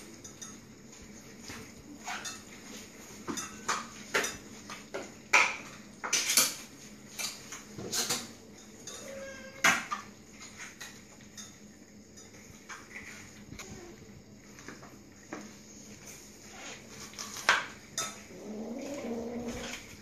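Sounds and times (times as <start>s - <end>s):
metal food bowl clinking: 7.2s - 9.3s, 17.3s - 19.9s.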